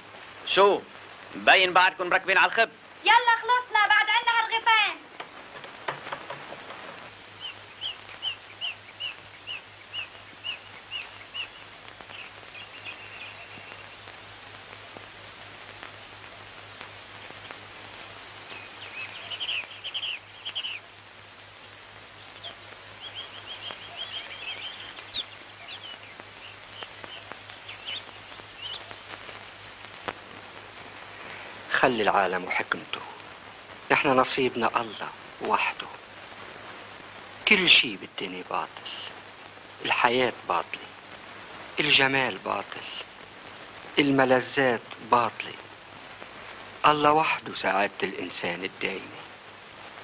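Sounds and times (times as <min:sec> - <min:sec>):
film soundtrack hiss and hum: 0:00.0 - 0:50.0
small bird chirping: 0:07.3 - 0:15.1, 0:17.1 - 0:29.4.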